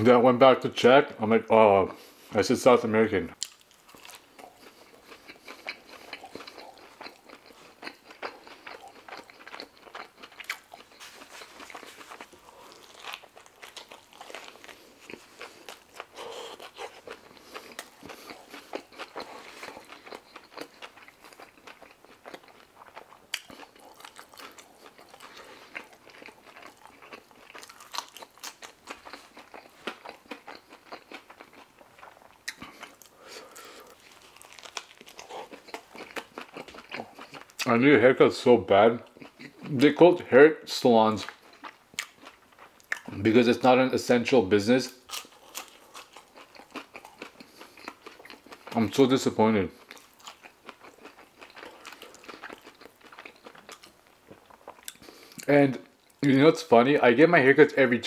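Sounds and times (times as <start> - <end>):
biting into wrap: 3.4 - 37.6
person chewing food: 3.4 - 37.7, 39.0 - 39.9, 41.2 - 43.3, 44.9 - 56.3.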